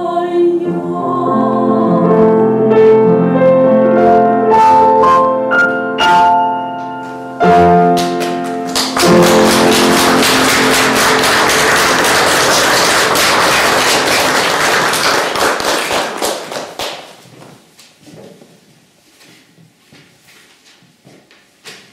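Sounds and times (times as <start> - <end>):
grand piano chords: 0.0 - 15.7
audience applauding: 7.9 - 17.1.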